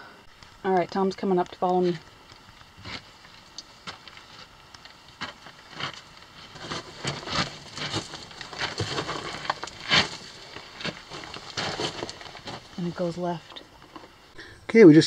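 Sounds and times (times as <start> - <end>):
small stones shifting: 2.7 - 12.8
scraping on loose rock and gravel: 2.7 - 13.4.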